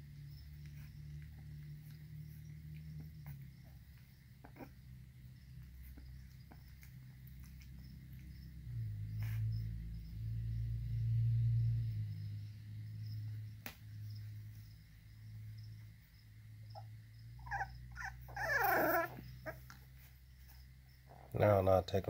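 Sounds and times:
crickets chirping: 0.0 - 22.0
puppies whimpering and yipping: 16.8 - 19.8.

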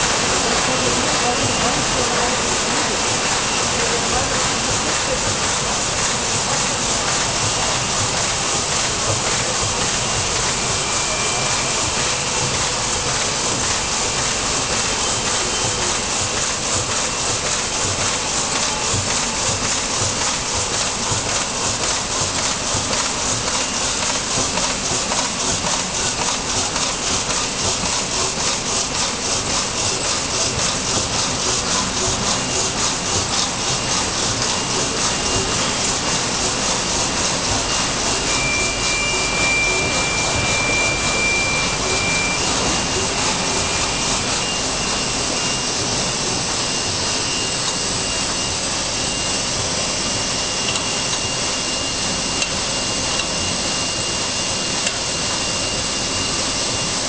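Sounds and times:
machine clattering: 0.0 - 47.8
faint high whine: 38.2 - 45.2.

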